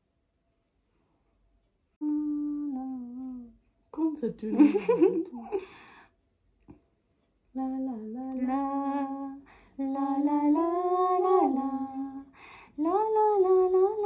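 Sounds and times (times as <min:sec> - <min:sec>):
woman humming a slow tune: 0:02.0 - 0:03.6, 0:07.6 - 0:14.0.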